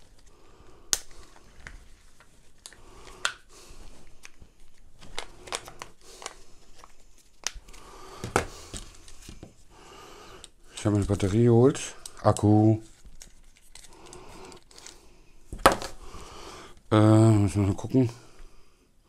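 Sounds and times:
crinkling rustle: 0:10.8 - 0:15.1.

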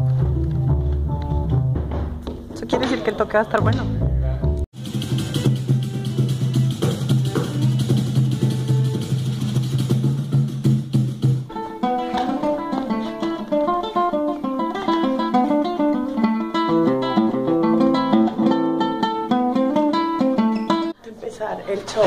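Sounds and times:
small guitar strummed and picked: 0:04.8 - 0:10.5, 0:11.5 - 0:20.9
shaker: 0:04.8 - 0:11.3.

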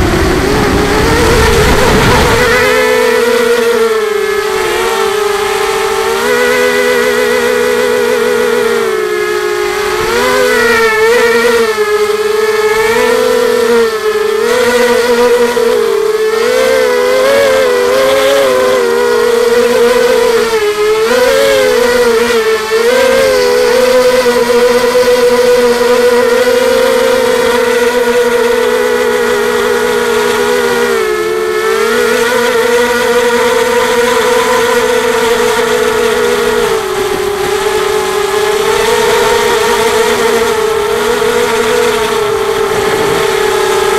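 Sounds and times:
drone motors whining: 0:00.0 - 0:43.9.

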